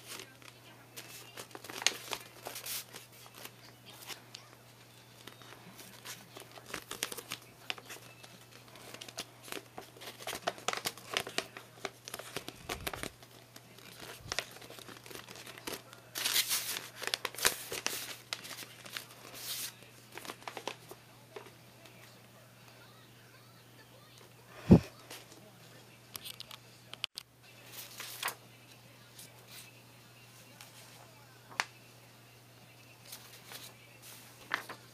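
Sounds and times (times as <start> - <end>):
paper crinkling and rustling: 0.0 - 22.2, 27.6 - 29.8, 33.0 - 34.9.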